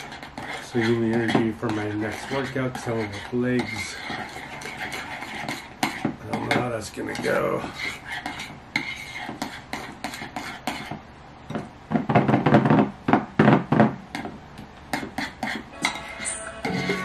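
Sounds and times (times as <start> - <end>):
metal spoon stirring in ceramic bowl: 0.0 - 11.0, 14.9 - 17.0.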